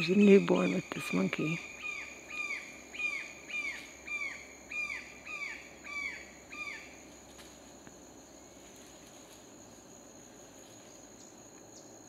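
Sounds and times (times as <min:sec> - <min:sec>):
bird calling: 0:00.0 - 0:07.0
high insect drone: 0:00.0 - 0:12.0.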